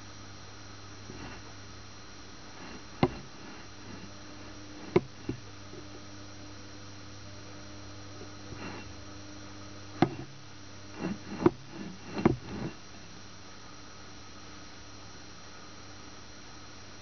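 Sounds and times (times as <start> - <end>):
low electrical hum: 0.0 - 17.0
sharp clicks and knocks: 2.6 - 4.1, 4.8 - 5.9, 10.0 - 12.8.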